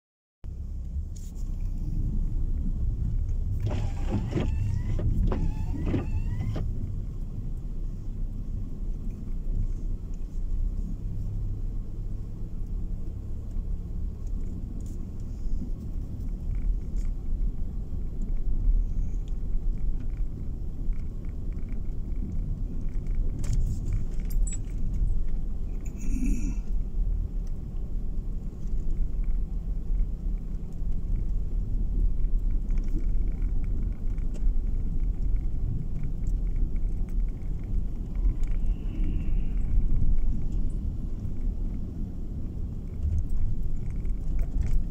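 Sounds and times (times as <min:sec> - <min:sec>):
car engine and tyres rumbling: 0:00.4 - 0:44.9
rising squeaks: 0:03.6 - 0:06.7
faint clicks and rattles: 0:12.5 - 0:44.9.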